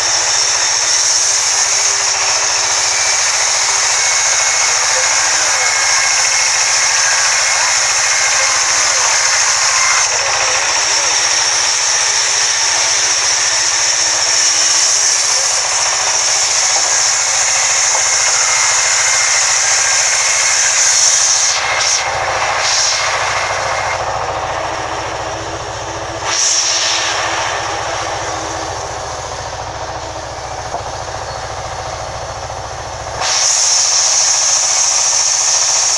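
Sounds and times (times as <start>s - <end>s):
band saw running: 0.0s - 35.9s
high hiss of saw cutting: 0.0s - 35.9s.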